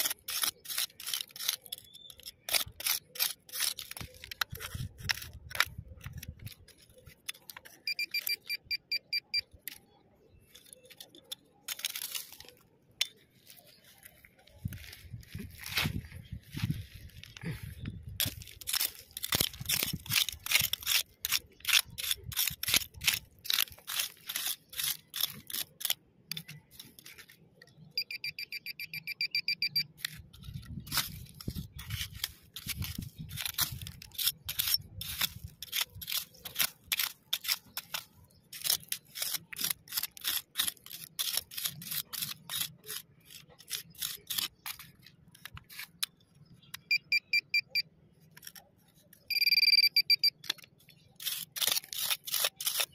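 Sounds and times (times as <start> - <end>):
hand tool scraping stony soil: 0.0 - 8.4, 9.4 - 28.1, 29.9 - 46.9, 48.3 - 52.9
metal detector pulsing beep: 7.8 - 9.5, 27.9 - 29.9, 46.8 - 47.9, 49.3 - 50.4.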